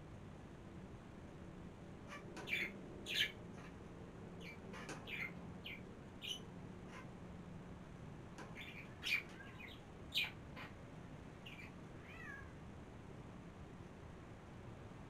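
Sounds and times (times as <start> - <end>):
cat meowing: 11.5 - 12.5.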